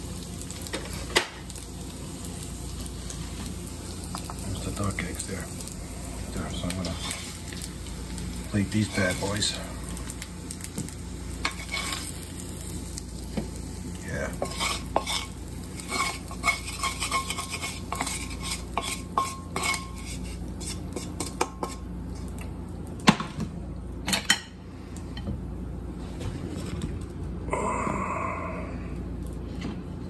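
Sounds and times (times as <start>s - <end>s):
metal utensil scraping a frying pan: 11.4s - 12.2s, 14.3s - 21.8s.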